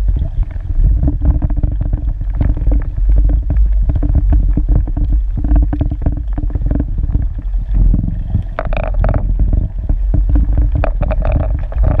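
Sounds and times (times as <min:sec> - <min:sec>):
steady low hum: 0:00.0 - 0:12.0
underwater water rumble: 0:00.0 - 0:12.0
clicks and knocks: 0:10.1 - 0:12.0.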